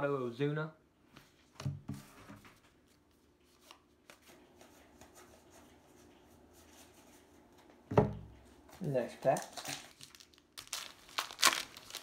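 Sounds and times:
cards rustling and clicking: 8.8 - 12.0.

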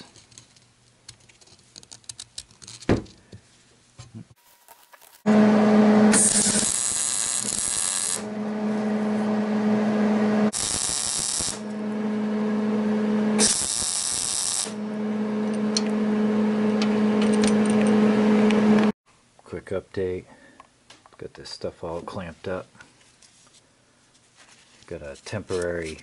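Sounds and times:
arc welding hiss: 6.1 - 8.3, 10.5 - 11.7, 13.4 - 14.8.

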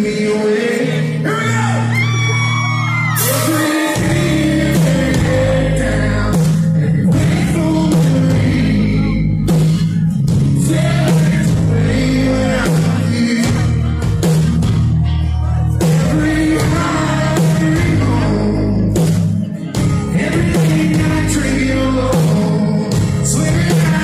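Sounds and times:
man singing lead: 0.0 - 14.5, 15.6 - 24.0
acoustic and electric guitars: 0.0 - 24.0
bass: 0.0 - 24.0
drum hits: 3.2 - 5.5.

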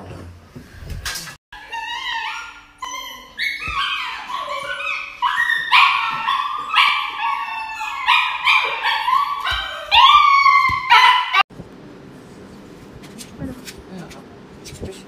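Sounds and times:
dog yelping and whining: 1.6 - 11.4.

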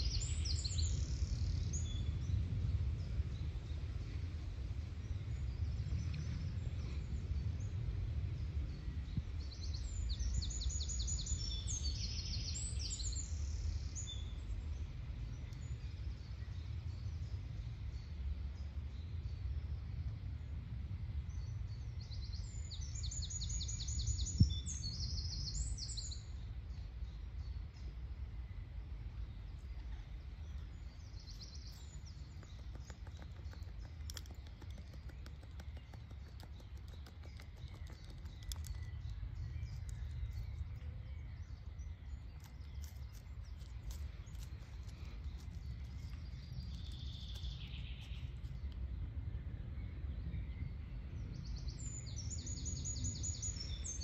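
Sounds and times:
low steady rumble: 0.0 - 54.0
songbirds trilling: 21.3 - 54.0.

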